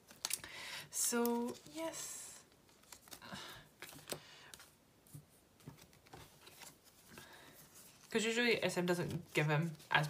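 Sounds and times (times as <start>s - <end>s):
plastic sleeves rustling and tapping: 3.8s - 10.0s.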